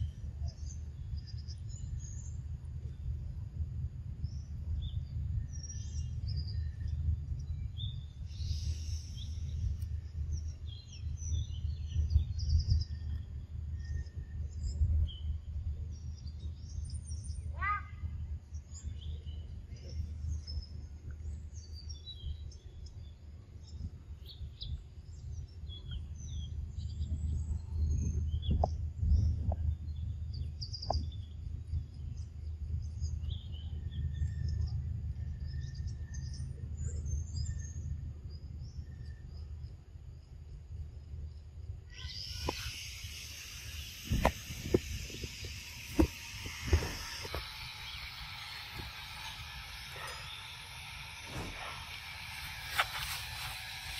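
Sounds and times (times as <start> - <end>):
steady low rumble: 0.0 - 41.9, 43.0 - 53.9
birds chirping: 41.9 - 53.9.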